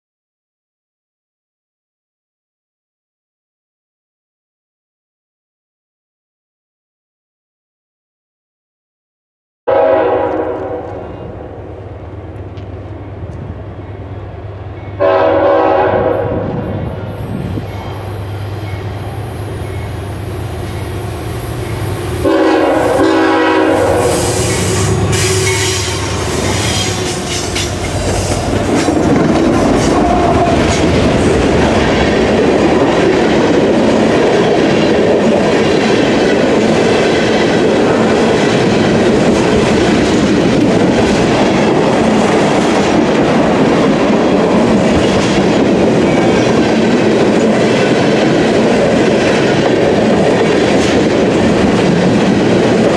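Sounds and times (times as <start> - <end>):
locomotive horn chord: 9.7 - 11.4, 15.0 - 16.6, 22.2 - 27.6
train cars rumbling on rails: 9.7 - 52.9
diesel locomotives running: 9.8 - 52.9.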